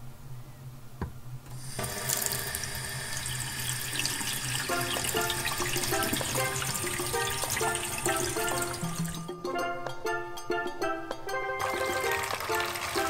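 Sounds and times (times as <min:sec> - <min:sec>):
water spraying into sink: 0:01.6 - 0:09.3, 0:11.6 - 0:13.0.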